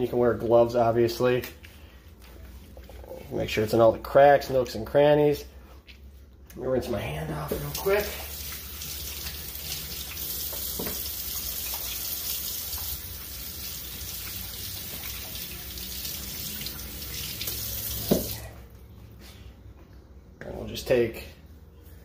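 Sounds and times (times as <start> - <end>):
faucet running into sink: 7.5 - 18.4.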